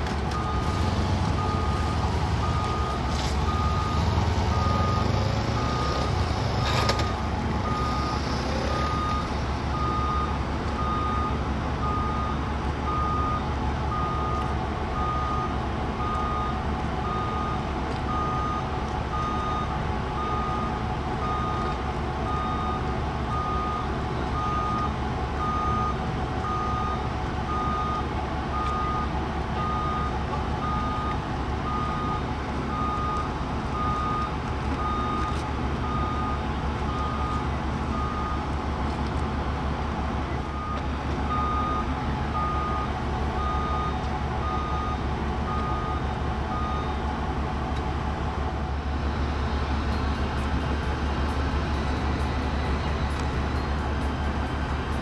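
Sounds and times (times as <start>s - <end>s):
electronic warning beeps: 1.4s - 14.4s.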